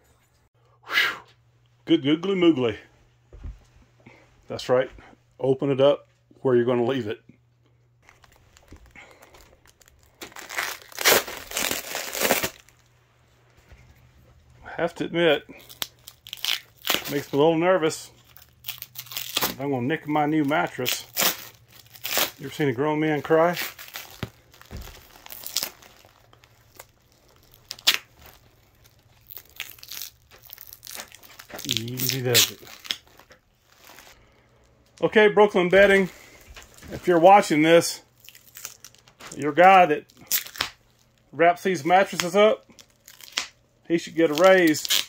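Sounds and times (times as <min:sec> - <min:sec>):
soft low thump: 0:03.3 - 0:03.8
plastic wrap crinkling: 0:08.0 - 0:13.6, 0:15.4 - 0:45.0.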